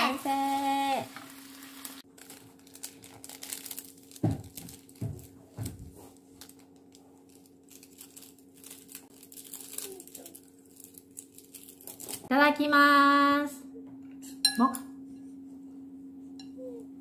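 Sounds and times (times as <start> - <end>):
plastic packet crinkling: 1.4 - 12.3.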